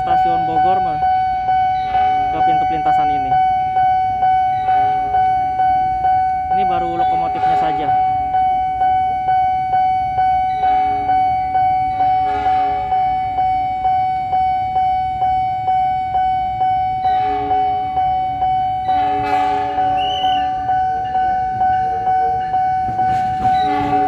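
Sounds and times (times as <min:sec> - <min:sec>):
level-crossing warning bell: 0:00.0 - 0:24.0
diesel locomotive horn: 0:12.2 - 0:13.2, 0:17.0 - 0:24.0.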